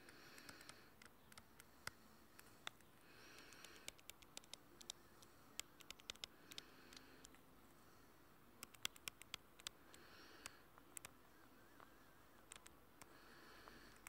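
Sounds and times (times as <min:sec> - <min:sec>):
light clicks on touchscreen: 0:00.1 - 0:07.5, 0:08.6 - 0:14.0.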